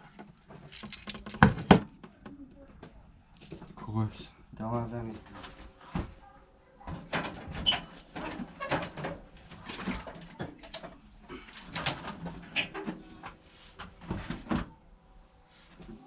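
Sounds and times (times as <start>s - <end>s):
tools clattering and rustling: 0.0s - 2.0s, 6.9s - 14.4s.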